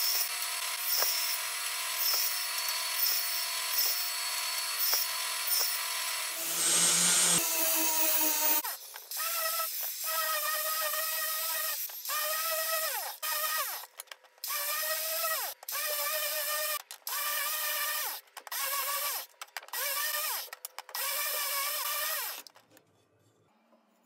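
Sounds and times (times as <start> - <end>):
angle grinder sanding wood: 2.0 - 8.7.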